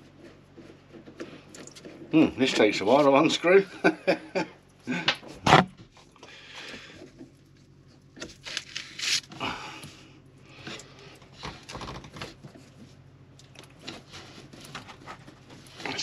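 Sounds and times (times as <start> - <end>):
breathy grunts of effort: 9.4 - 10.0.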